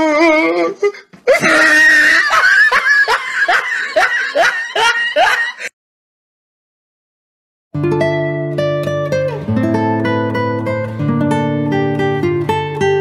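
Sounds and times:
person laughing in high voice: 0:00.0 - 0:05.7.

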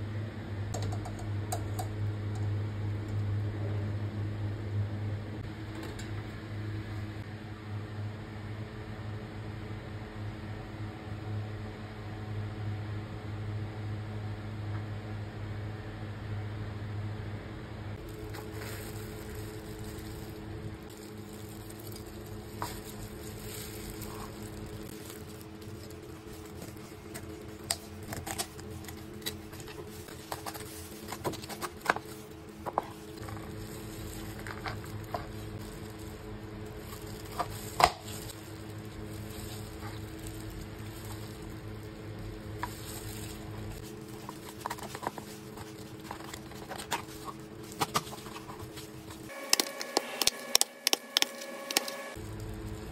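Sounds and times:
low hum: 0:00.0 - 0:52.9
meat squishing and tearing: 0:18.0 - 0:52.9.

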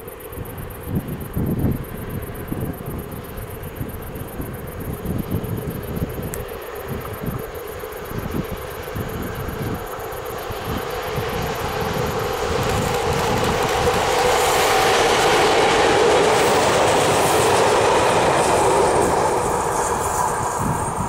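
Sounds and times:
diesel locomotive hum: 0:00.0 - 0:21.0
train wheels rolling on rails: 0:00.0 - 0:21.0.

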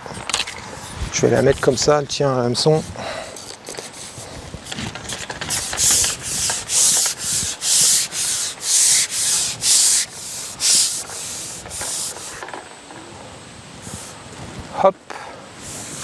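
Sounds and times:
fishing pole rubbing through hands: 0:02.7 - 0:12.4, 0:15.6 - 0:16.0.

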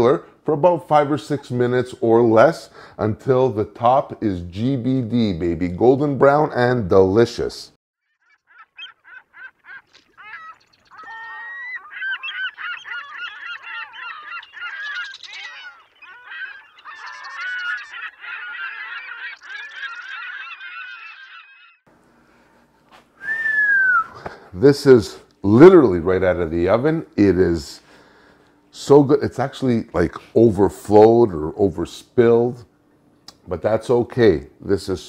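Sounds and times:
flock of birds calling: 0:08.0 - 0:21.8.

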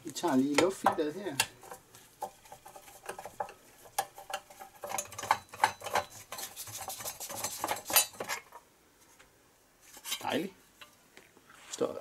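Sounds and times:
metallic clicks and scrapes of tools: 0:01.3 - 0:08.6, 0:09.9 - 0:10.9.

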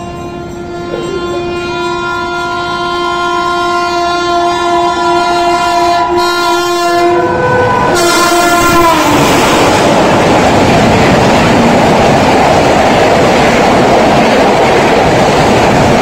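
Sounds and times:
train horn sounding: 0:00.0 - 0:09.9
train rushing past: 0:00.0 - 0:16.0.

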